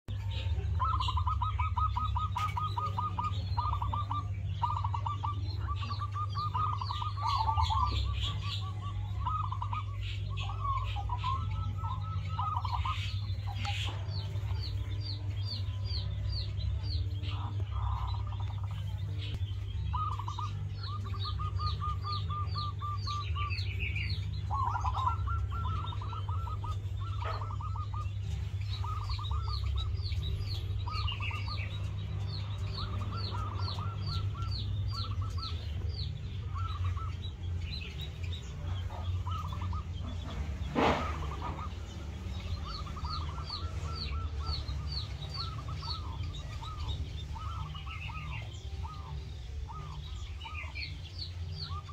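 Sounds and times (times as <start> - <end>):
small birds chirping: 0.0 - 51.9
doves cooing: 0.1 - 51.9
steady low rumble: 0.1 - 51.9.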